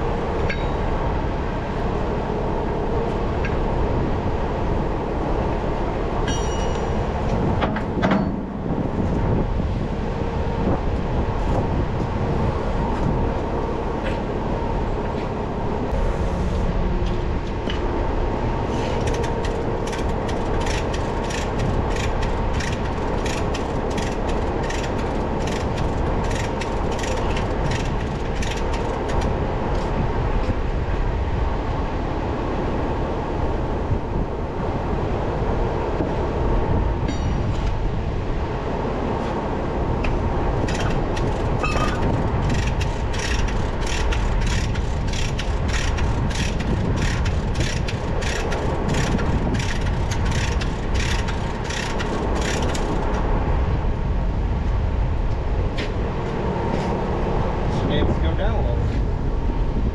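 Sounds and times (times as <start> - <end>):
heavy machinery rumbling: 0.0 - 59.9
regular metallic clanking: 0.4 - 0.9, 6.2 - 9.4, 37.0 - 37.8.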